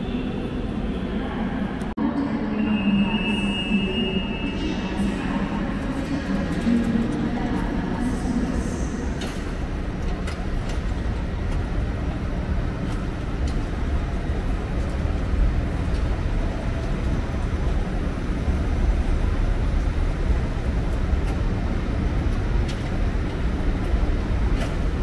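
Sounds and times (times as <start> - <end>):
train rumbling: 0.0 - 25.0.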